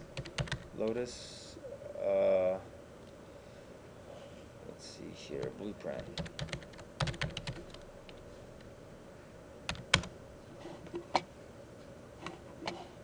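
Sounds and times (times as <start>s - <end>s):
typing on computer keyboard: 0.2s - 0.7s, 6.0s - 7.8s, 9.7s - 10.1s.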